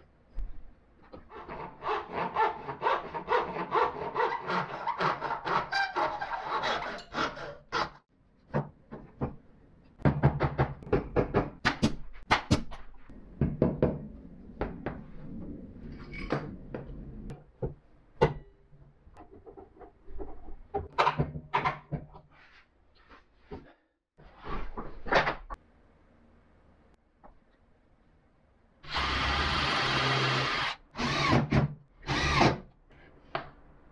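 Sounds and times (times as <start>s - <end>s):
knocks and clatters on workbench: 19.2s - 22.3s.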